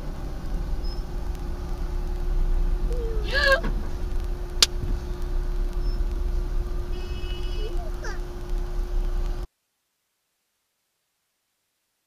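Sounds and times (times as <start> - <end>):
car rumbling while moving: 0.0 - 9.5.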